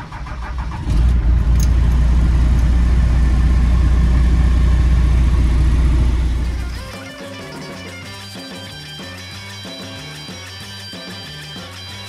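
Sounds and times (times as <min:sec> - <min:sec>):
truck engine rumbling: 0:00.0 - 0:07.0
starter motor cranking: 0:00.0 - 0:07.1.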